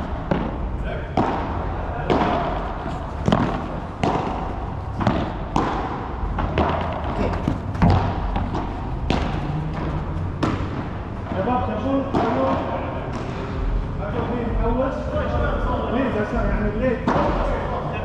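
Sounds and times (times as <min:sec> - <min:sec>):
rackets hitting ball: 0:00.0 - 0:13.5, 0:17.0 - 0:17.6
ball bouncing on court: 0:00.2 - 0:13.4.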